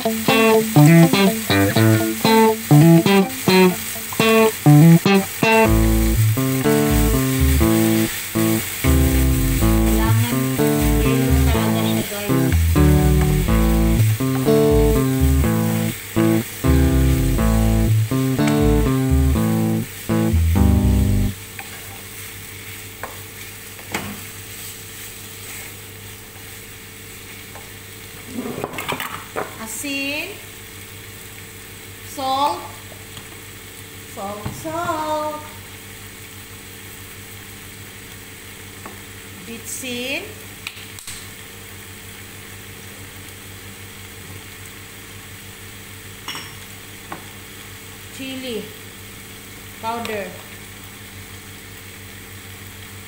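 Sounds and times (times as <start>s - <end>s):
chicken sizzling in a frying pan: 0.0s - 28.3s, 29.0s - 53.0s
low hum: 5.6s - 21.3s.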